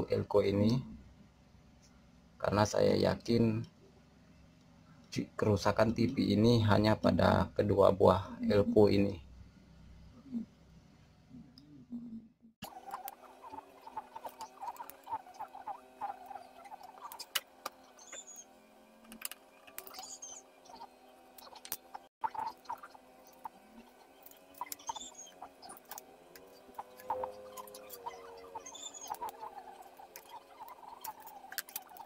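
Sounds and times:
faint high chirps: 12.6s - 18.6s, 19.6s - 32.0s.

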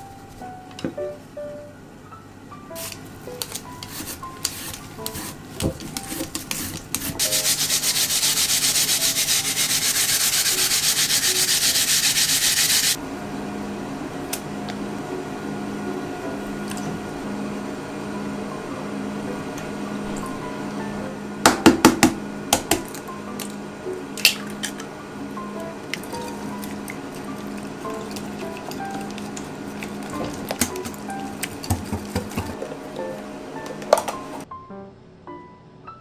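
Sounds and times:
rapid rhythmic grater rasping: 3.8s - 13.0s, 25.7s - 34.2s.

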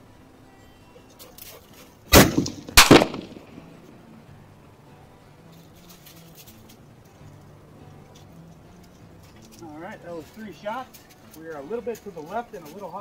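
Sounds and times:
rifle shots: 2.1s - 3.7s.

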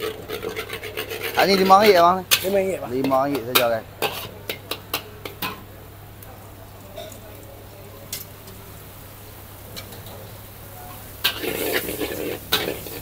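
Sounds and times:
metal spatula scraping a wok: 0.0s - 5.6s, 11.2s - 13.0s.

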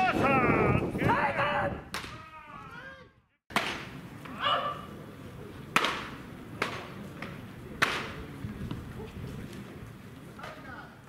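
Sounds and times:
baseballs popping into mitts: 1.9s - 2.2s.

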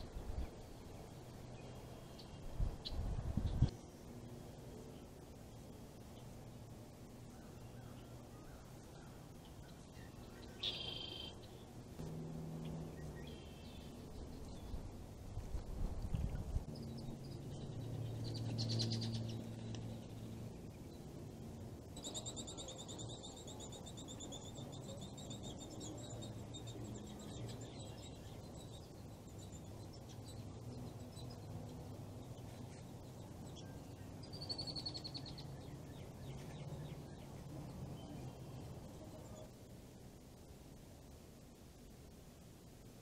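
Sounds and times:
songbird trill: 0.0s - 41.1s
low steady hum: 0.0s - 43.0s
short high bird calls: 10.4s - 11.6s.

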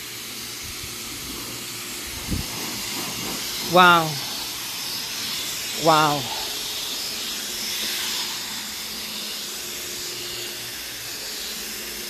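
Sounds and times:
pressure washer spraying water: 0.0s - 12.0s.

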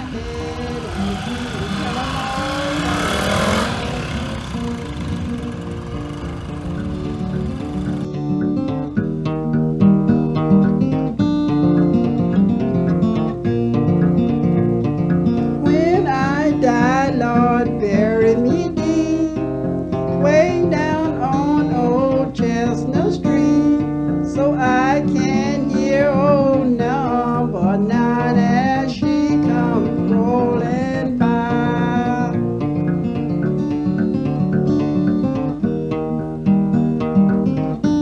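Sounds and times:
strummed acoustic guitar: 0.0s - 38.0s
wavering guitar lead melody: 0.0s - 38.0s.

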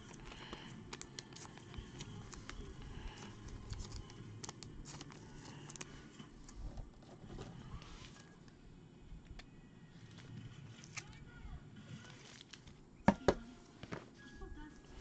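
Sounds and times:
cards slipped into plastic sleeves: 0.0s - 5.9s, 9.4s - 11.2s.

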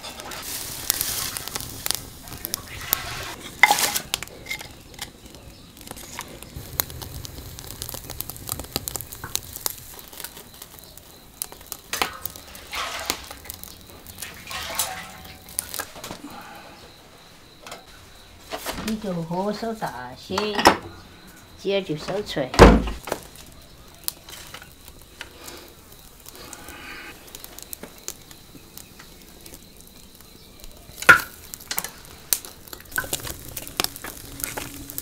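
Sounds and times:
wood fire crackling: 0.0s - 35.0s
sharp pops and clicks: 0.4s - 16.2s, 23.0s - 35.0s.

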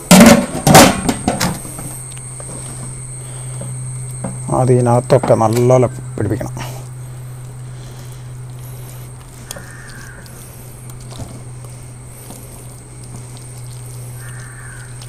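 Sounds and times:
steady low hum: 0.0s - 15.0s
hands squelching paste on chicken: 7.4s - 15.0s.

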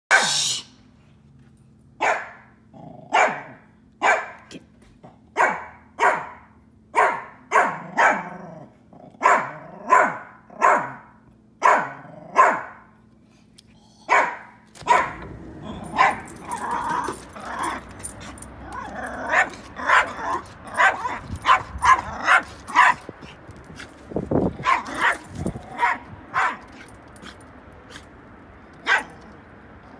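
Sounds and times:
small dog barking: 0.1s - 0.4s, 2.0s - 2.5s, 3.1s - 4.5s, 5.3s - 8.4s, 9.2s - 12.8s, 14.1s - 17.8s, 18.7s - 23.4s, 24.6s - 26.8s, 28.8s - 29.2s
dog yipping: 9.2s - 11.0s, 14.1s - 23.1s, 24.6s - 26.8s, 28.8s - 29.2s.

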